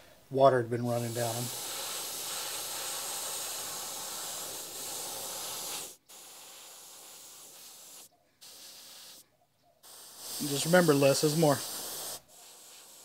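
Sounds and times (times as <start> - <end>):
airbrush spraying hiss: 0.8 - 9.2, 9.8 - 13.0.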